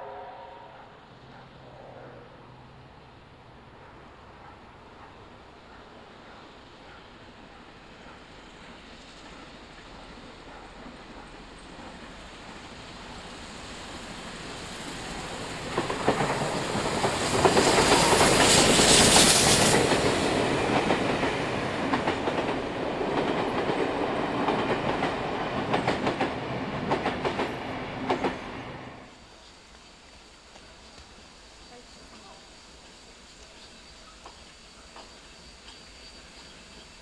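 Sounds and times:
steam locomotive passing: 0.0s - 37.0s.

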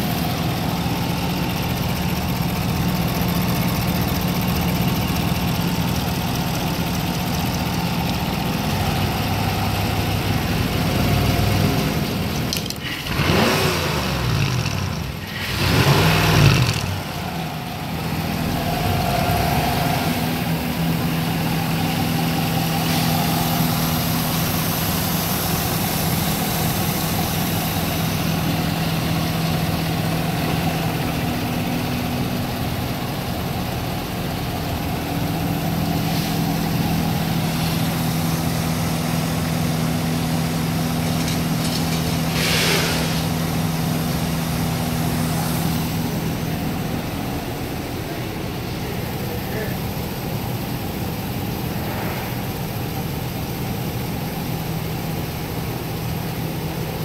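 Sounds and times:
marine engine idling: 0.0s - 13.2s
brief rush of noise: 42.0s - 43.4s, 51.7s - 52.6s.

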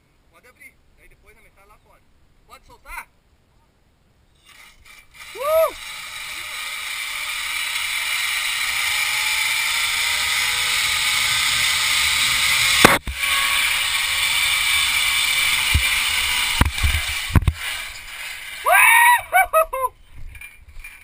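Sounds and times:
pulleys whirring along steel cable: 4.4s - 19.3s.

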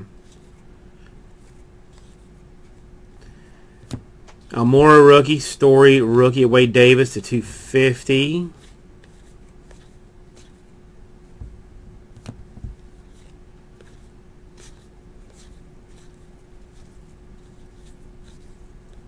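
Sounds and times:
faint steady hum: 0.0s - 19.0s
cards scraping and flicking: 0.2s - 4.9s, 8.6s - 10.7s, 12.1s - 19.0s.

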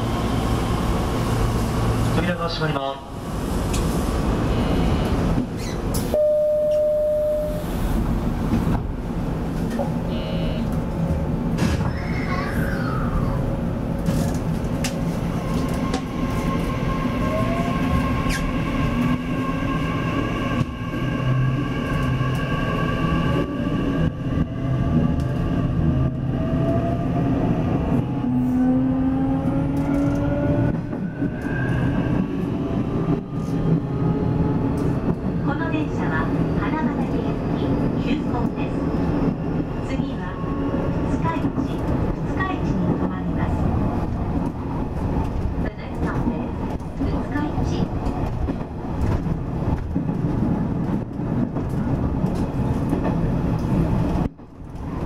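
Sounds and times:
train running rumble: 0.0s - 55.0s
short steady beep: 6.2s - 7.6s.

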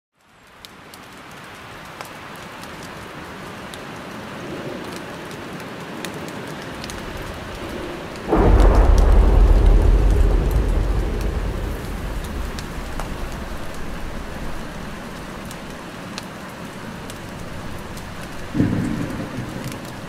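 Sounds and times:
steady rain hissing: 0.2s - 20.0s
thunderclap and rumble: 6.7s - 20.0s.

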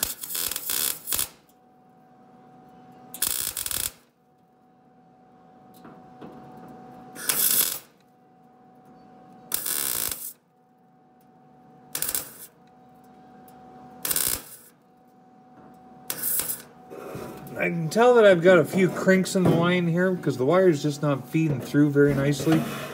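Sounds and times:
welding arc crackling: 0.0s - 1.6s, 3.1s - 4.2s, 7.1s - 8.1s, 9.5s - 10.4s, 11.9s - 12.6s, 14.0s - 14.8s, 16.0s - 16.8s
faint welder hum: 0.0s - 22.9s.

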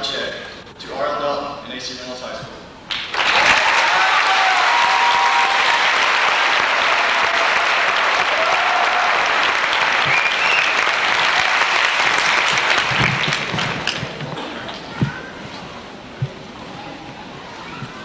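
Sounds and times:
large audience applauding: 2.9s - 14.2s.

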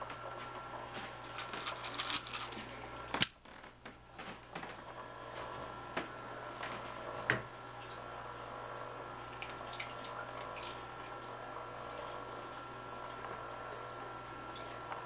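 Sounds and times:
faint steady hum: 0.0s - 15.0s
paper and plastic rustling: 1.0s - 2.8s.

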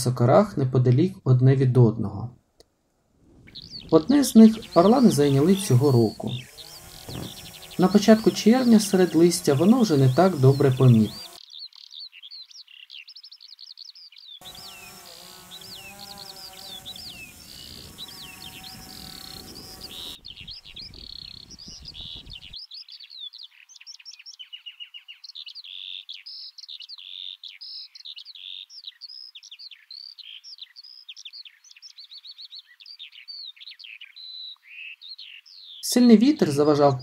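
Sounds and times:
wind noise: 3.2s - 7.8s, 16.8s - 22.6s
songbirds singing: 3.4s - 37.0s
drone propeller hum: 3.6s - 11.4s, 14.4s - 20.2s.

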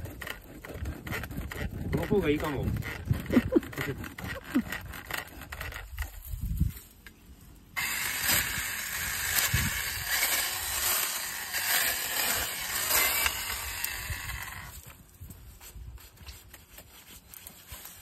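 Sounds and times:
mini chainsaw cutting grass: 0.0s - 6.8s, 7.8s - 15.1s.

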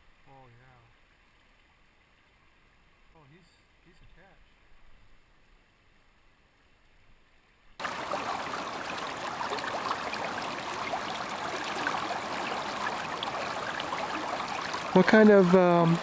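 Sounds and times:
river water rushing: 7.8s - 16.0s.

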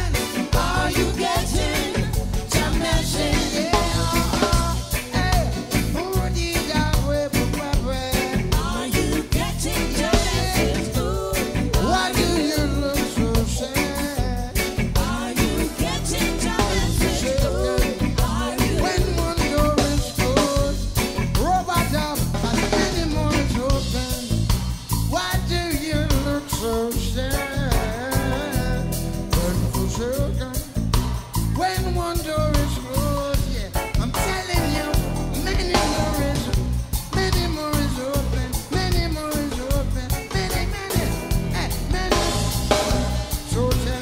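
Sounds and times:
song with singing voice: 0.0s - 44.0s.

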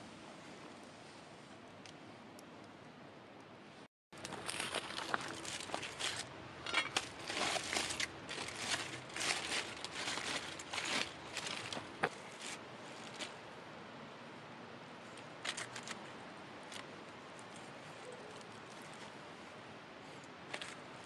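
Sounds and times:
aluminium foil crinkling: 4.2s - 13.3s.

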